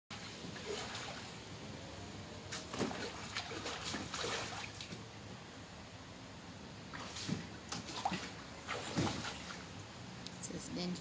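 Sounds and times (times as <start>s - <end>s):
water sloshing and splashing: 0.1s - 1.6s, 2.4s - 5.2s, 6.8s - 10.0s.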